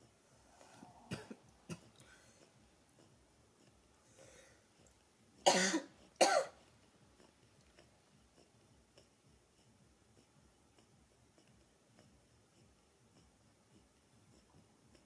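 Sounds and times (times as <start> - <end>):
person coughing: 1.1 - 1.9, 5.4 - 6.6.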